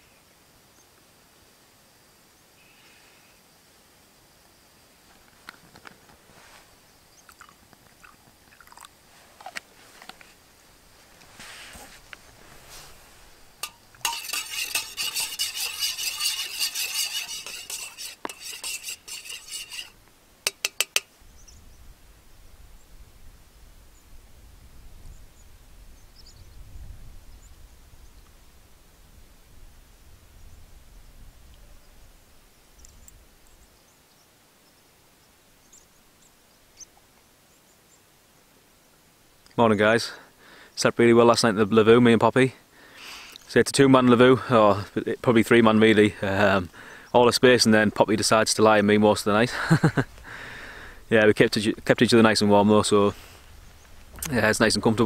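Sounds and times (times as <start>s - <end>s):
spoon clinking in metal mug: 13.6s - 19.9s, 20.5s - 21.0s
spoon tapping mug rim: 20.5s - 21.1s
faint high bird chirps: 21.2s - 21.9s, 25.1s - 26.7s.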